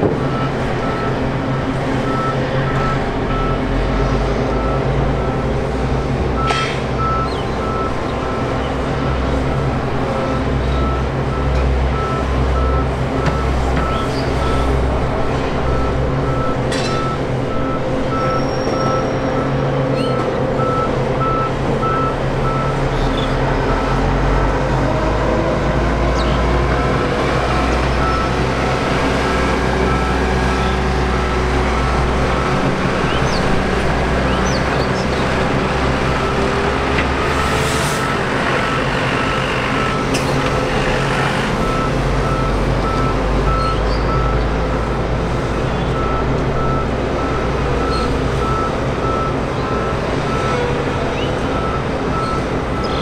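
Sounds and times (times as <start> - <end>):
vehicle engine hum: 0.0 - 53.0
reversing alarm beeping: 0.1 - 1.3, 2.0 - 3.9, 6.4 - 14.7, 15.6 - 22.9, 26.7 - 33.2, 35.5 - 45.1, 45.8 - 53.0.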